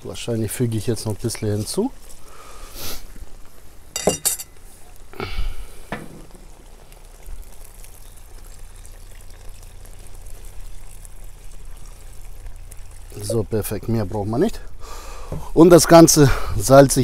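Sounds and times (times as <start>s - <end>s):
clinks and knocks: 4.0s - 4.6s
water pouring onto rice: 6.2s - 14.3s.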